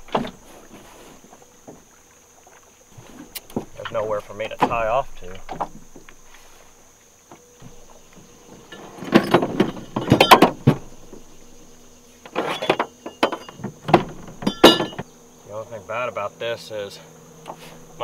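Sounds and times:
boat hulls bumping together: 0.0 - 15.1, 17.4 - 18.0
short metallic ring: 14.4 - 15.0.

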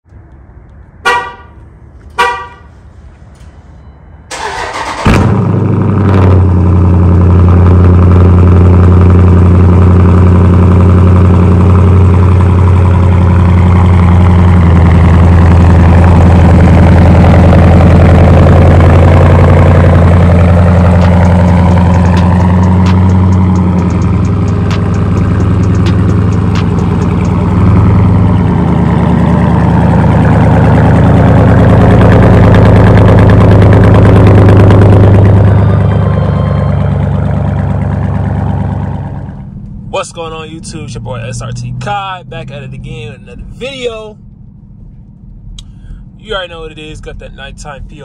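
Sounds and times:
car horn chirps: 1.0 - 2.8
engine cranking and starting: 4.3 - 5.5, 20.1 - 27.8
loud engine idle: 4.3 - 39.9.

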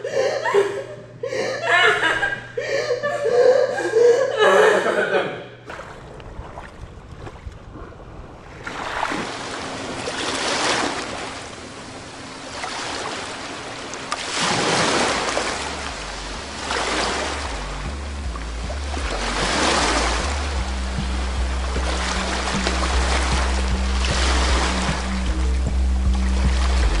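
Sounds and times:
waves washing onto pebbles: 8.5 - 18.0, 18.8 - 25.3
low music tones: 14.0 - 27.0.

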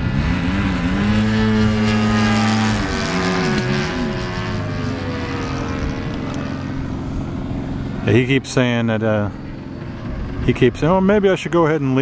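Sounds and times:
model plane engine droning: 0.0 - 12.0.

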